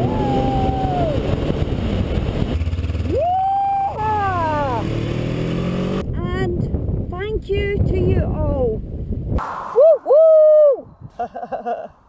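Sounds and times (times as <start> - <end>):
whoops rising and falling: 0.0 - 1.4, 3.0 - 4.8, 9.6 - 11.2
wind noise: 0.0 - 3.2, 6.0 - 12.0
motorcycle engine running: 0.0 - 6.0.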